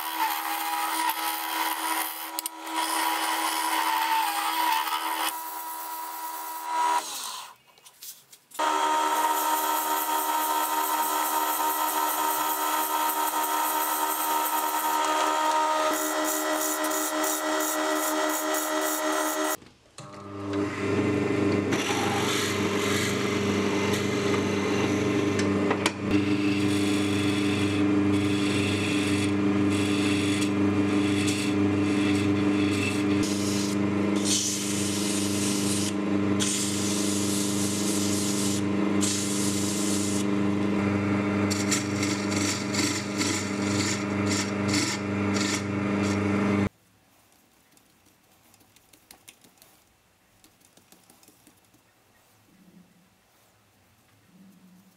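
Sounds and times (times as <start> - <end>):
tool scraping spinning wood: 0.0 - 7.3, 41.4 - 46.7
lathe humming: 8.6 - 19.6, 20.5 - 46.7.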